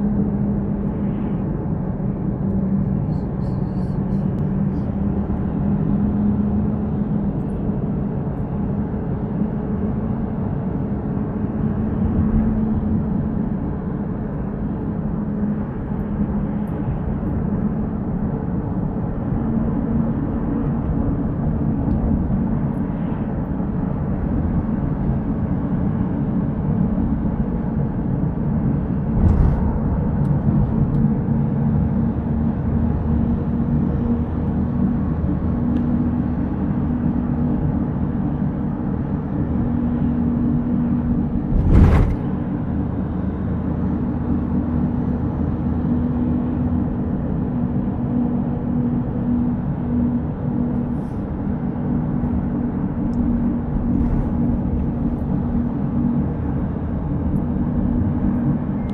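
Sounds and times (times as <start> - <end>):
car engine and tyre noise: 0.0 - 58.9
car thumps: 41.5 - 42.4.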